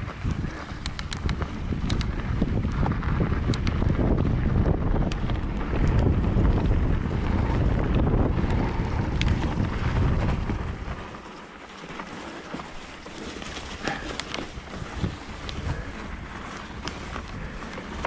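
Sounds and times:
wind buffeting microphone: 0:00.0 - 0:11.6, 0:12.6 - 0:18.0
tyres rumbling on trail: 0:00.0 - 0:18.0
sharp clicks: 0:00.8 - 0:02.2, 0:03.4 - 0:03.8.

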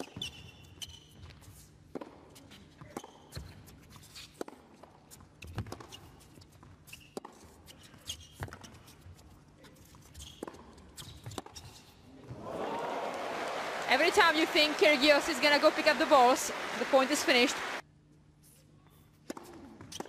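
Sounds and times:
crowd applauding and cheering: 0:12.3 - 0:17.8.

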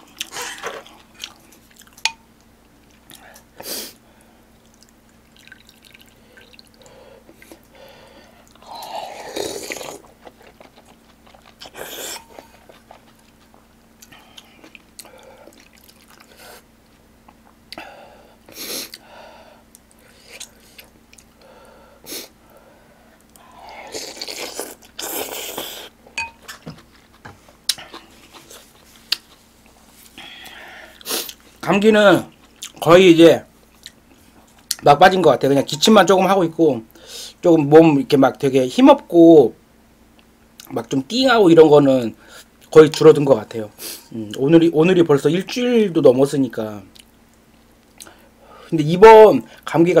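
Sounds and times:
soft chewing: 0:00.0 - 0:03.5, 0:04.6 - 0:17.9, 0:18.8 - 0:21.5, 0:22.4 - 0:31.6, 0:32.2 - 0:32.8, 0:33.6 - 0:34.8.

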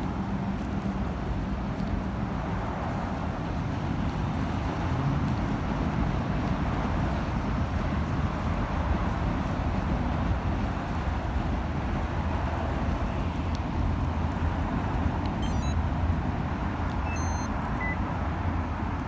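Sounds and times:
high electronic beeps: 0:15.4 - 0:15.8, 0:17.0 - 0:18.0.

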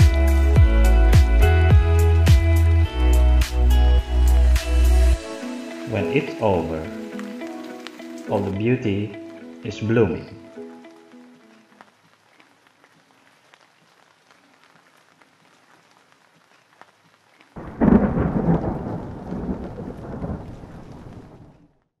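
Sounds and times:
light rain falling: 0:00.0 - 0:21.9
water drips: 0:05.6 - 0:21.3
thunderclap rumbling: 0:17.6 - 0:21.8.

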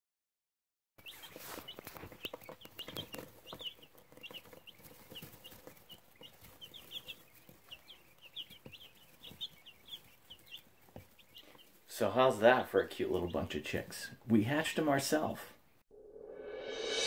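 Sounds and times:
chicks peeping: 0:01.0 - 0:15.8
clicks and rustles: 0:01.1 - 0:11.9.

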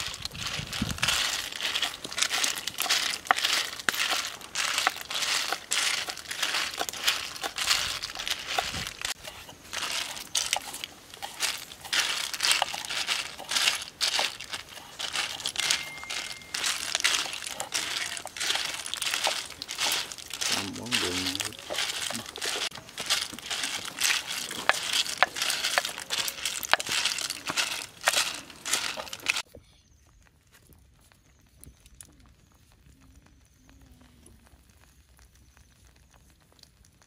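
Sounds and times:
shells rattling in a wok: 0:00.0 - 0:29.4
wood fire: 0:00.0 - 0:37.0.

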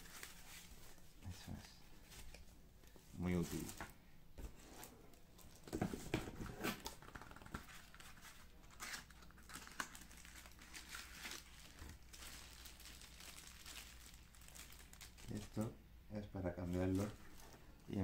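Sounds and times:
packaging rustling and crinkling: 0:03.4 - 0:03.9, 0:05.4 - 0:15.7, 0:16.6 - 0:17.9.

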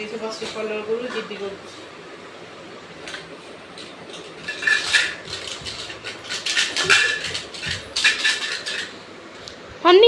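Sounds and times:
can contents rattling: 0:03.8 - 0:09.0.

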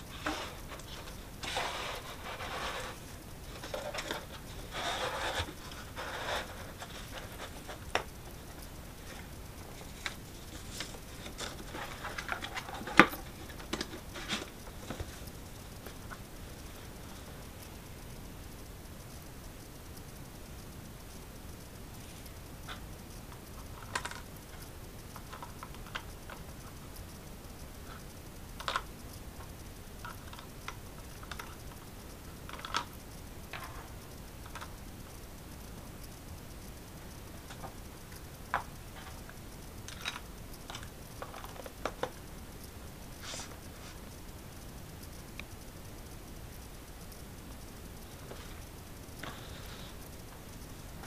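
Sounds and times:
cardboard scraping and rustling: 0:00.1 - 0:08.0.

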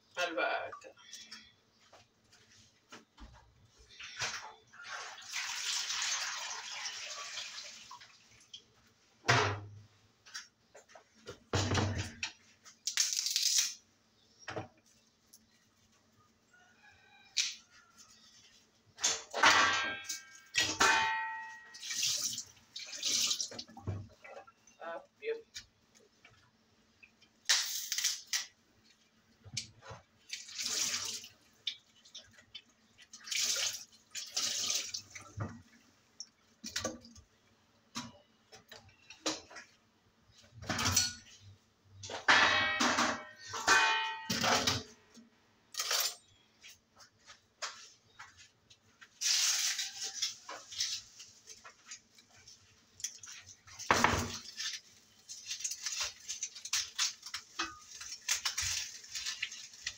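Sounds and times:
dishes and utensils clattering: 0:19.0 - 0:22.3, 0:40.5 - 0:45.1, 0:45.8 - 0:46.4.

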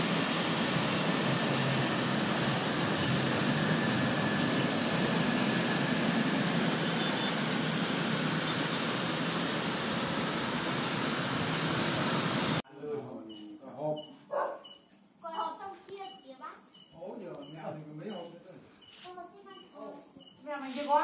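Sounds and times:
rain on city street: 0:00.0 - 0:00.5, 0:06.1 - 0:12.6
crickets chirping: 0:00.0 - 0:11.9, 0:12.6 - 0:21.0
traffic: 0:00.0 - 0:12.6.

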